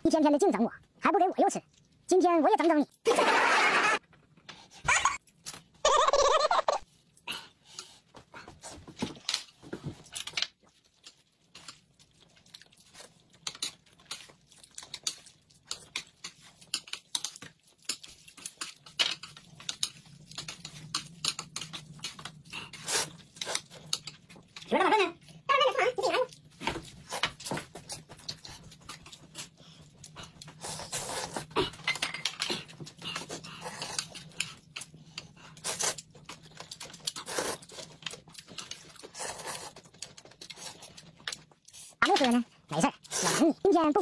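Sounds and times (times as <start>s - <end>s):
chewing and slurping noodles: 9.7s - 25.5s, 26.2s - 42.0s.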